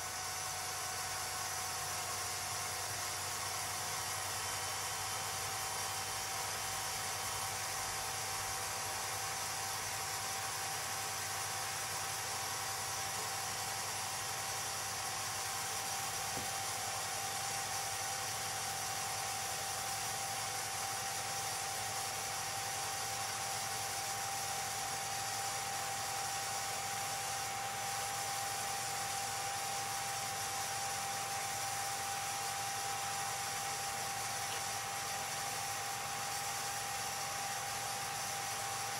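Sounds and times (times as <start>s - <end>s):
film projector whirring: 0.0s - 38.9s.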